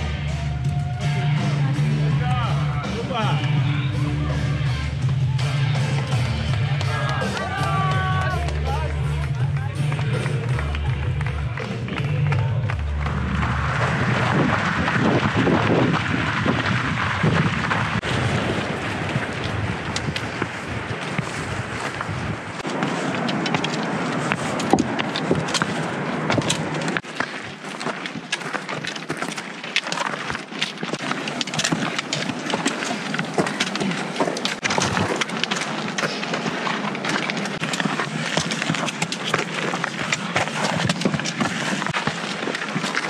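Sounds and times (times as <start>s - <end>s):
footsteps crunching on rocky trail: 17.2s - 43.0s
clothing and gear rustling: 19.2s - 43.0s.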